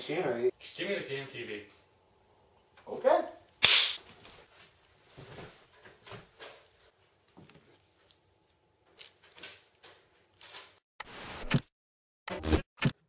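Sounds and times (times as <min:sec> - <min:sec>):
soft rustles: 0:04.0 - 0:08.6.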